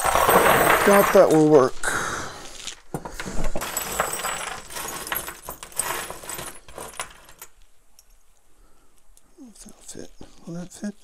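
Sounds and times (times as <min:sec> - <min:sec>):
metal screws clattering and jingling: 0:00.0 - 0:01.6, 0:03.0 - 0:08.3.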